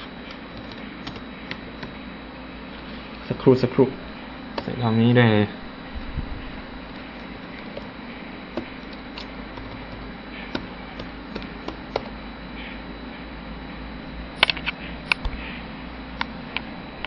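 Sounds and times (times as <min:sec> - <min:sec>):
steady background hum: 0:00.0 - 0:17.0
keyboard and mouse clicks: 0:08.6 - 0:12.1.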